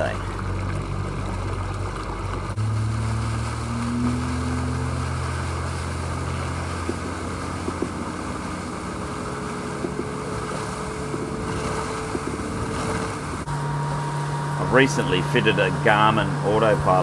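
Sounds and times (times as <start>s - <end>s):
boat engine drone: 0.0s - 17.0s
water spray hissing along hull: 2.5s - 17.0s
wind on microphone: 3.4s - 14.6s.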